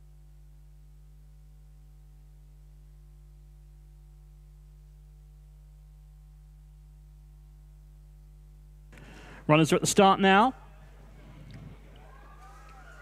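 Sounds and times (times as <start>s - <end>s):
faint electrical mains hum: 0.0s - 13.0s.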